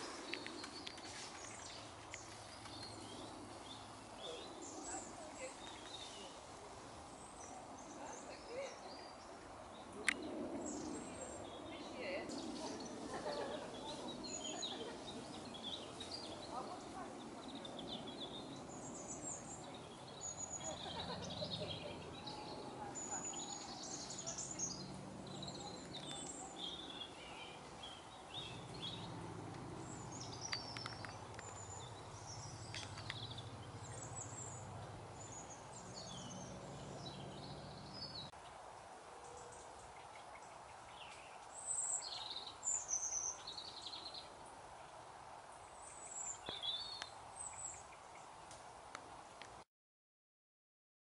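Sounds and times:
small birds chirping: 0.0 - 38.6, 39.2 - 48.6.

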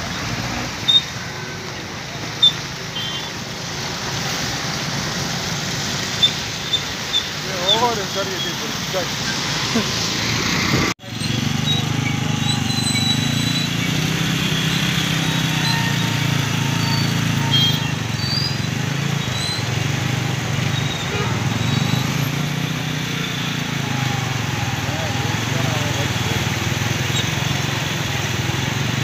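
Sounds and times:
tyres hissing through water: 0.0 - 29.0.

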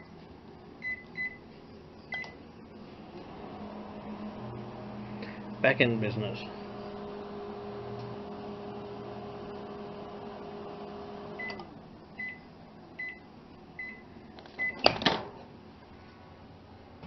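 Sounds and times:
microwave oven humming: 0.0 - 14.8
microwave beeps: 0.8 - 1.4, 2.1 - 2.4, 11.3 - 14.8.

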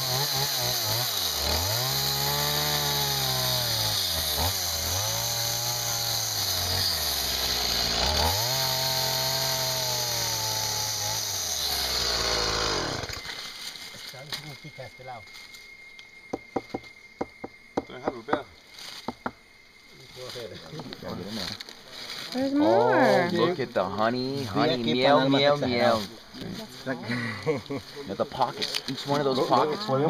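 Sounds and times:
chainsaw running: 0.0 - 13.4.

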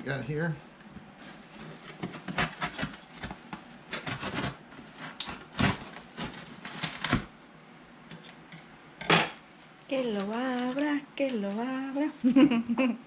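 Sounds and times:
cardboard and tape scraping: 1.2 - 7.3.

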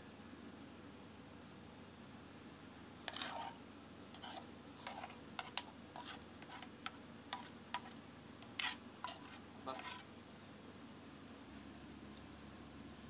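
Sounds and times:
low steady hum: 0.0 - 13.0
short scrapes: 3.1 - 6.7, 7.3 - 10.1.

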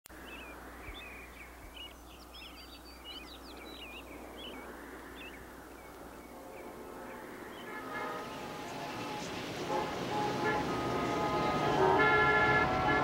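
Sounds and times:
small birds chirping: 0.1 - 9.7
city noise hiss and hum: 0.1 - 13.0.

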